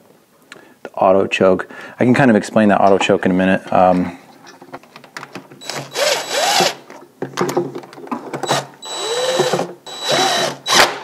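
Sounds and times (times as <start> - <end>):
cordless driver motor whine: 5.6 - 6.8, 8.5 - 10.9.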